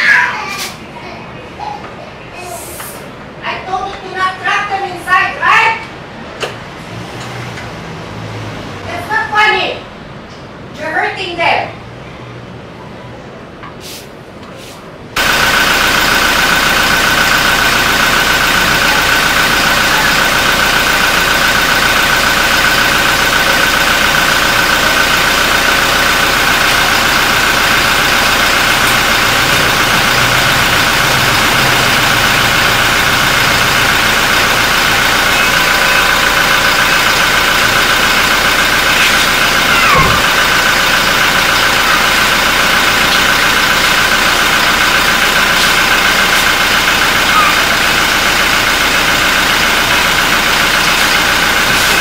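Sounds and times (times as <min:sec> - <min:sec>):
car engine idling: 0:15.2 - 0:52.0.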